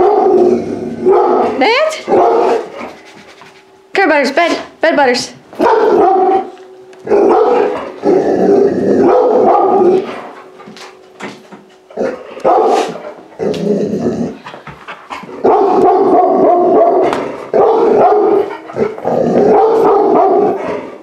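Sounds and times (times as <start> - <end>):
dog barking: 1.0 - 2.7, 5.6 - 6.5, 7.2 - 7.8, 9.0 - 10.1, 12.4 - 13.0, 15.4 - 18.7, 19.5 - 20.6.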